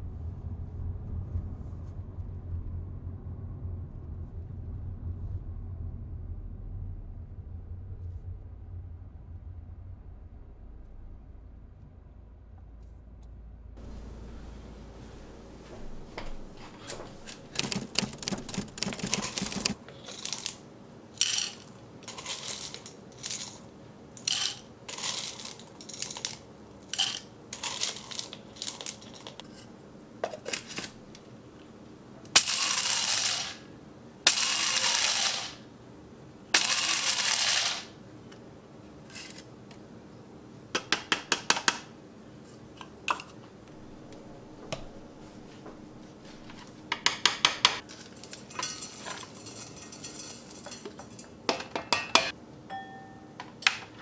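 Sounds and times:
coffee beans clattering: 17.2s - 20.6s, 21.2s - 29.4s, 32.3s - 33.6s, 34.3s - 35.6s, 36.5s - 37.9s, 47.8s - 52.3s.

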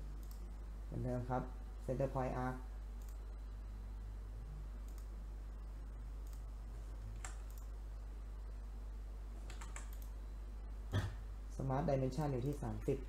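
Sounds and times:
low electrical hum: 0.0s - 13.0s
computer mouse clicks: 0.2s - 0.4s, 3.0s - 3.2s, 4.8s - 5.1s, 6.2s - 6.5s, 7.1s - 7.7s, 9.4s - 10.2s.

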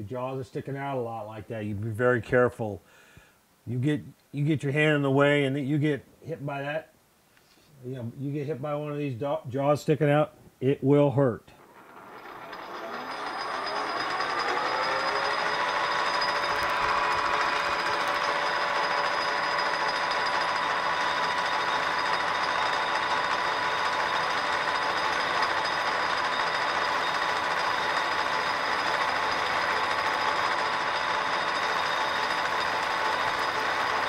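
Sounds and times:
metal lathe whining: 11.6s - 34.0s.

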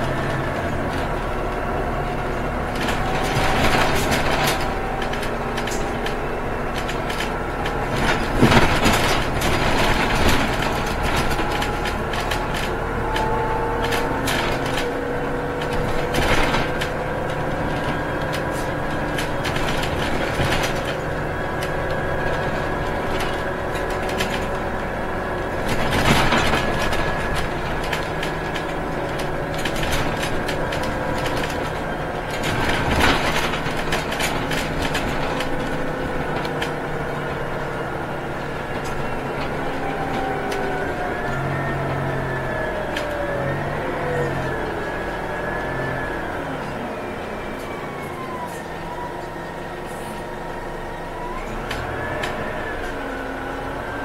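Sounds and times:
knocks and rattles: 0.0s - 41.7s
bus engine and drivetrain hum: 0.0s - 54.0s
road and tyre noise: 0.0s - 54.0s.

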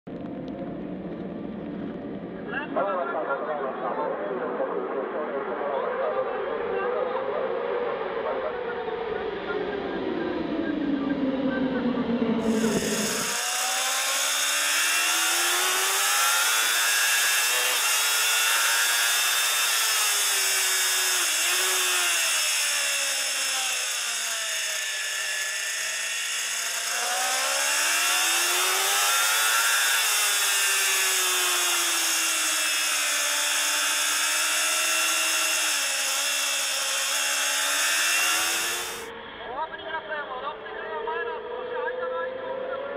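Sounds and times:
motorcycle engine accelerating: 8.6s - 39.2s.

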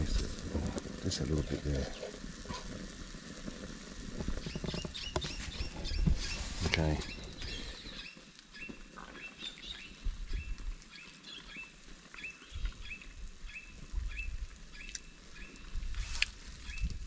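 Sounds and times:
bird chirping: 4.4s - 15.6s.

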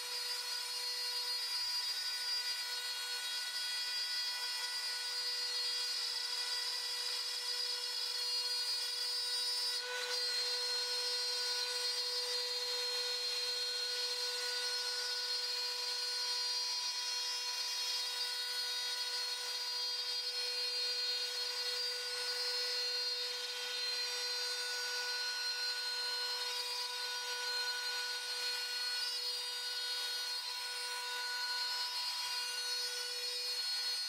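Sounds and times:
router spindle whining: 0.0s - 34.0s.

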